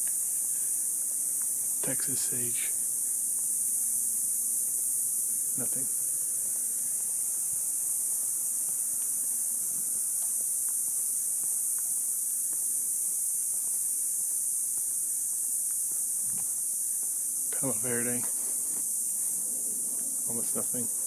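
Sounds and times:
cicada chorus hissing: 0:00.0 - 0:21.0.

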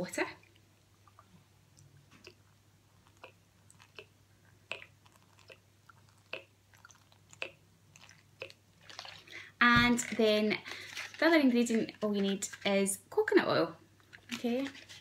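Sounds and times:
water dripping into plastic bowl: 0:04.7 - 0:09.4.

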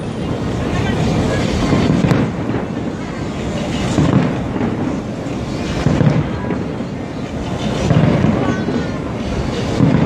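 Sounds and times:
firework sharp crack: 0:00.0 - 0:10.0
fireworks booming: 0:00.0 - 0:10.0.

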